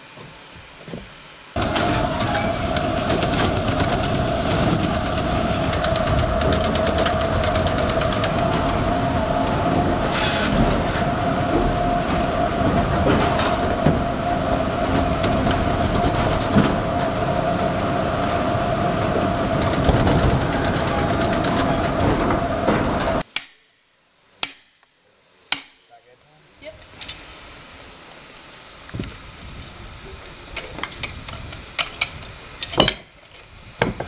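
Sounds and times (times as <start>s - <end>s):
sawmill machinery din: 1.6s - 23.2s
constant machine whine: 1.6s - 23.3s.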